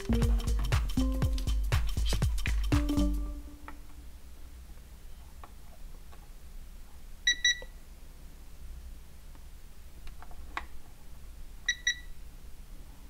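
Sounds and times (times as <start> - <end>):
steady low hum: 0.0 - 5.6
multimeter beeps: 7.3 - 7.8, 11.7 - 12.2.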